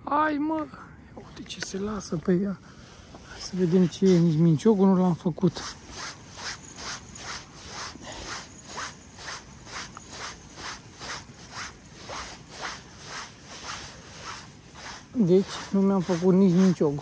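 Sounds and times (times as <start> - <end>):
fishing reel whirring rasp: 5.5 - 17.0.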